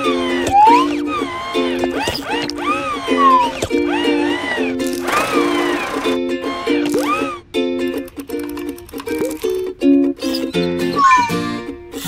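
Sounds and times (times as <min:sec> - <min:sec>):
sliding whistle-like tones: 0:00.0 - 0:07.4, 0:10.3 - 0:11.5
plucked chords: 0:00.0 - 0:12.0.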